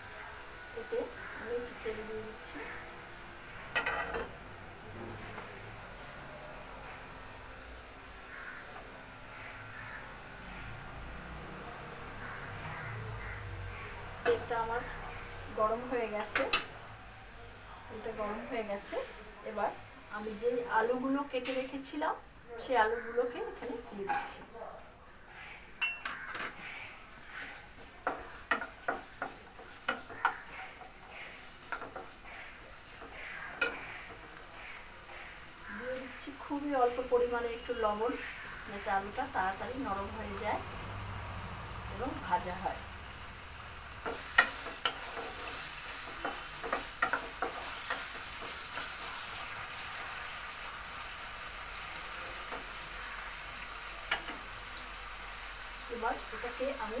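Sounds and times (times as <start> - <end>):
spatula scraping a pan: 3.7 - 4.3, 25.3 - 36.3, 44.0 - 50.0
potatoes sizzling in oil: 25.1 - 57.0.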